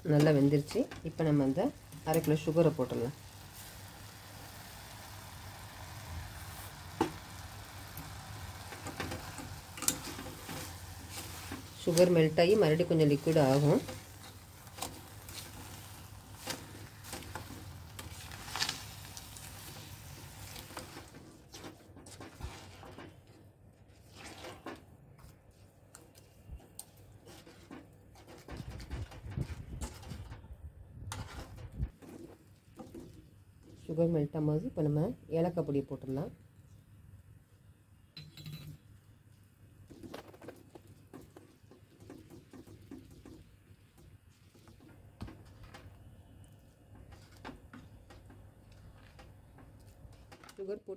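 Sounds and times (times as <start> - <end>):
faint sizzle: 0.0 - 21.6
spatula stirring and scraping: 0.1 - 30.2, 31.1 - 34.1, 39.9 - 50.5
spatula scraping pan: 8.4 - 23.0
steel cup clinking on pan: 38.2 - 38.8.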